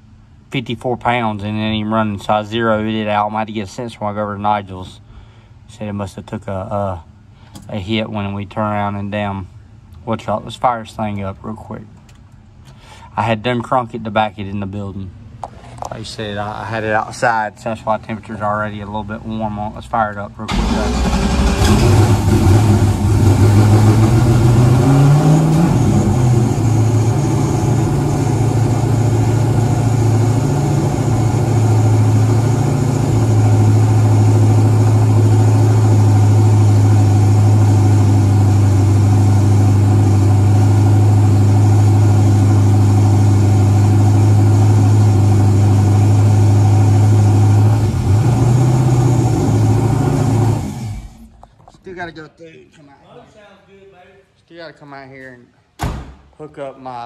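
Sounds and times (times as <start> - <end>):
car engine starting and idling: 16.0 - 51.6.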